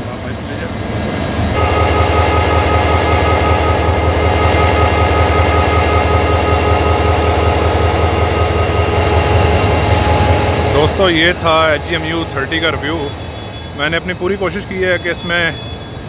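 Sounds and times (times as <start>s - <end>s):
locomotive engine hum: 0.0s - 16.0s
high whine: 0.5s - 16.0s.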